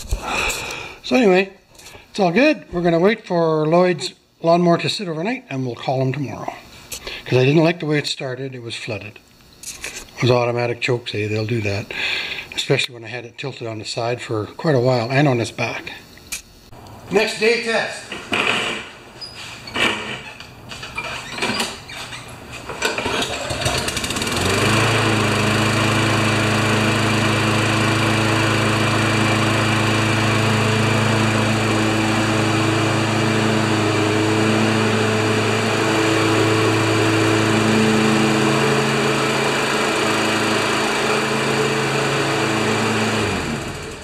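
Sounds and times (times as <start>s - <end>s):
lawn mower engine running: 16.8s - 44.0s.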